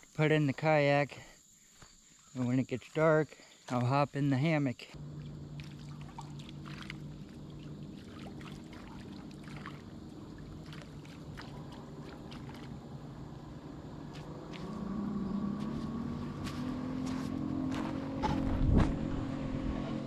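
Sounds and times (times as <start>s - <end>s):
distant engine hum: 4.9s - 20.0s
bowl rinsed in water: 5.2s - 12.8s.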